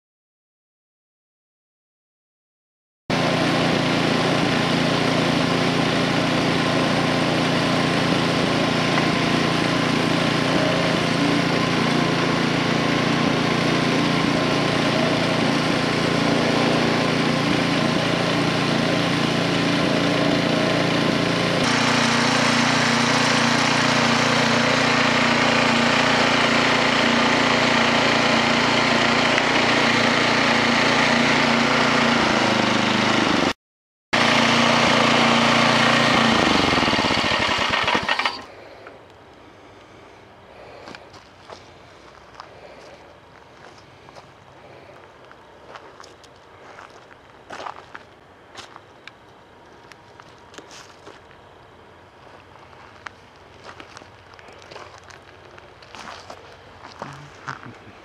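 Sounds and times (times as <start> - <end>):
winch engine running: 3.1 - 33.5, 34.2 - 39.1.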